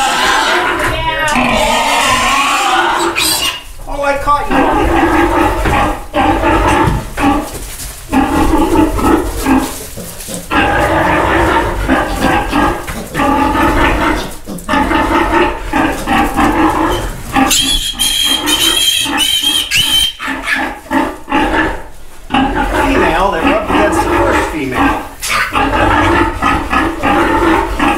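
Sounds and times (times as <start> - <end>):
piglets squealing: 0.0 - 3.8, 4.5 - 7.5, 8.1 - 27.9
sow calling: 0.0 - 3.8, 8.1 - 21.7.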